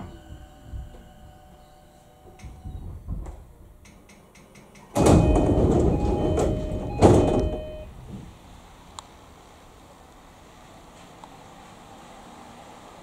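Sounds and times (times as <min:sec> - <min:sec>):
door chime: 0:00.0 - 0:02.8, 0:05.0 - 0:07.9
train doors clicking: 0:02.3 - 0:08.3
sliding doors rushing open: 0:04.9 - 0:09.5.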